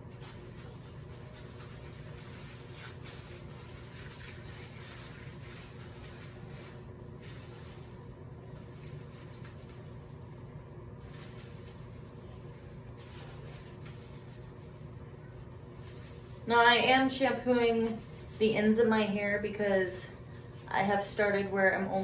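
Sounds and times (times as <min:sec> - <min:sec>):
steady low hum: 0:00.0 - 0:22.0
hands squishing shampoo lather: 0:00.2 - 0:16.4.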